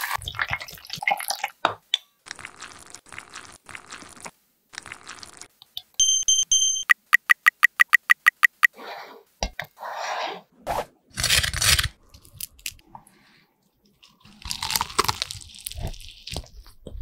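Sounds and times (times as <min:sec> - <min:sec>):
soft squishy sounds: 0:12.0 - 0:17.0
crunchy chewing: 0:13.9 - 0:17.0.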